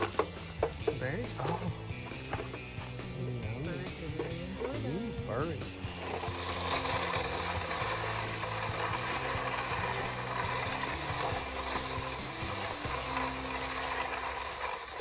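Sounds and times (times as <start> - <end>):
toy wheels scraping on dirt: 5.8 - 15.0.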